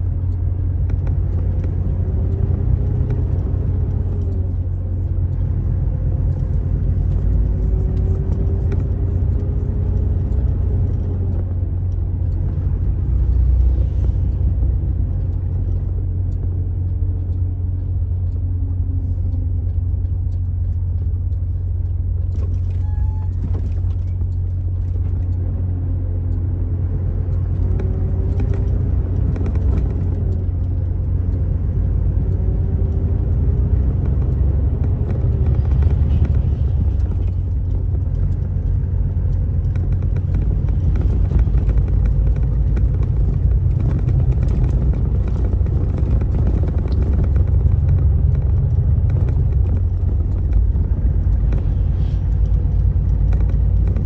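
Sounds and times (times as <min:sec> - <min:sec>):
vehicle engine and road noise: 0:00.0 - 0:54.0.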